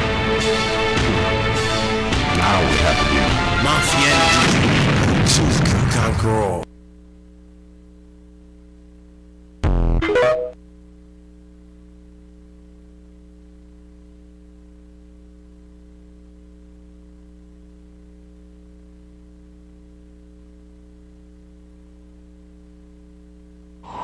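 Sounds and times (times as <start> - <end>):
electrical mains hum: 5.4 - 24.0.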